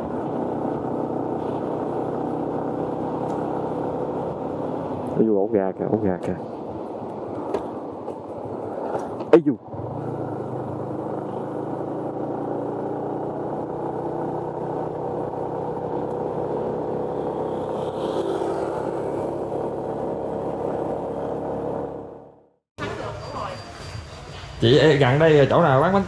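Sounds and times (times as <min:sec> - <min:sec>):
motorcycle engine running steadily: 0:00.0 - 0:05.2, 0:09.7 - 0:22.4.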